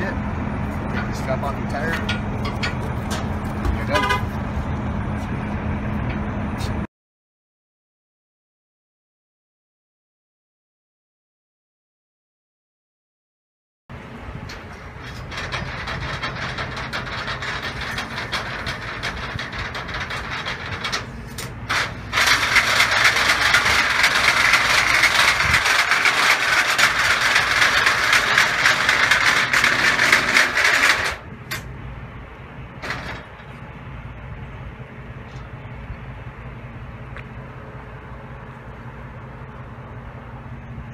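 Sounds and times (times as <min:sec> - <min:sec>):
trailer ramps lowering under power: 0:13.9 - 0:31.7, 0:32.7 - 0:33.7.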